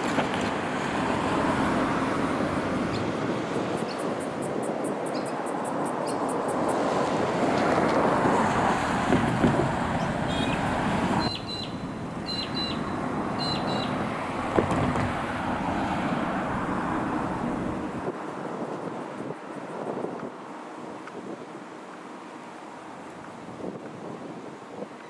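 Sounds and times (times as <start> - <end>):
road traffic rushing past: 0.0 - 19.4
wind on microphone: 0.0 - 21.7, 22.9 - 25.0.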